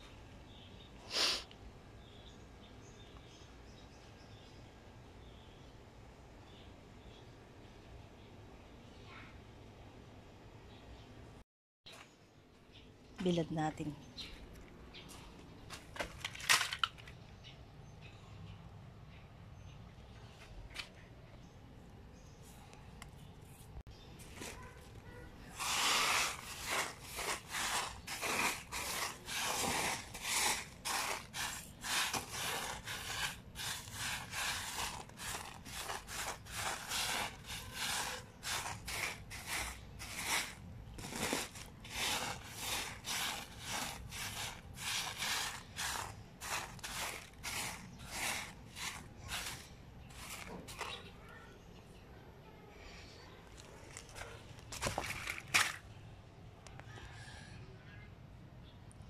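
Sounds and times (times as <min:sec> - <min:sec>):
eggshells crunching on plastic sack: 0:24.2 - 0:51.1, 0:53.9 - 0:55.9.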